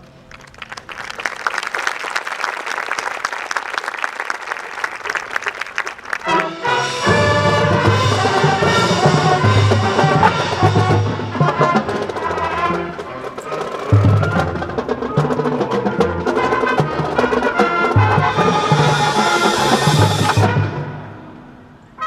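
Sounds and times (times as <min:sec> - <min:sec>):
brass chords: 0:06.1 - 0:22.0
percussion strikes: 0:06.2 - 0:21.5
snare drum: 0:07.0 - 0:20.8.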